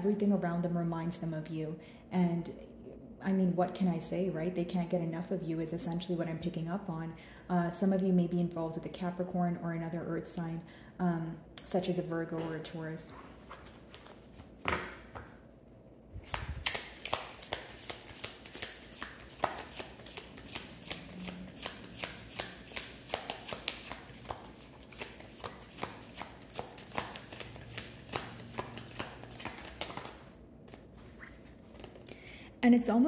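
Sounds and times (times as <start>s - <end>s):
cards being shuffled: 16.2s - 32.1s.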